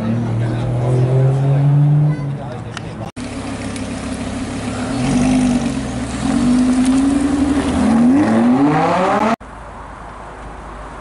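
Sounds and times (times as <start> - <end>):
car engine revving: 3.2 - 9.4.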